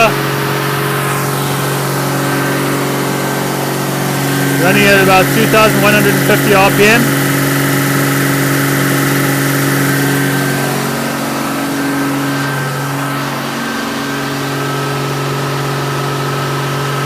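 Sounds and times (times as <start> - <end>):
inline-six engine running: 0.0 - 17.0.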